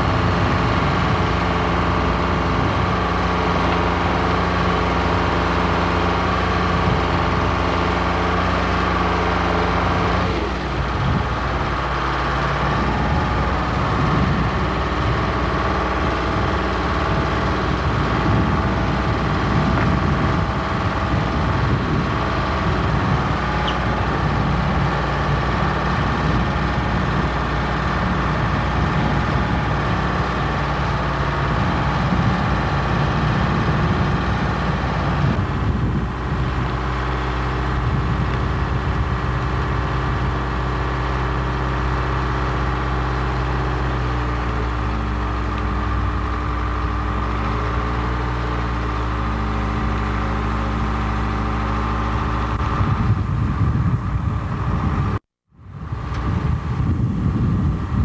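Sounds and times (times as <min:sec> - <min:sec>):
crane engine humming: 0:00.0 - 0:58.0.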